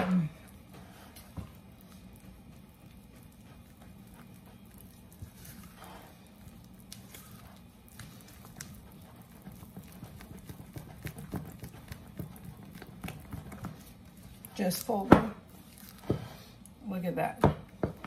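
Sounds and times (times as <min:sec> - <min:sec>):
wet squish of batter: 0:00.0 - 0:16.8
spatula tapping and scraping bowl: 0:07.9 - 0:16.4.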